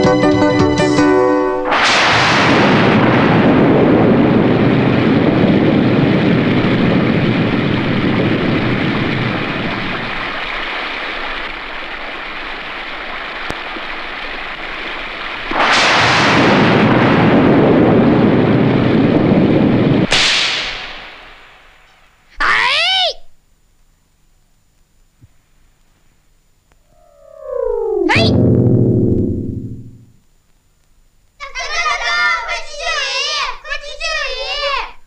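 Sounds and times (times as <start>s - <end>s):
loud crash: 1.6s - 6.5s, 15.5s - 19.0s, 20.0s - 21.8s
thunder: 1.7s - 10.4s, 15.5s - 21.8s
heavy rain: 2.2s - 20.1s.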